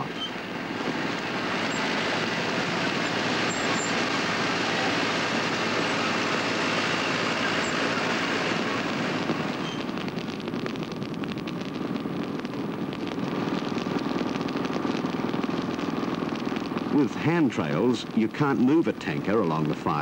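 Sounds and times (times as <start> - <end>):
bulldozer diesel engine running: 0.0 - 9.6
fire crackling through leaves: 0.0 - 20.0.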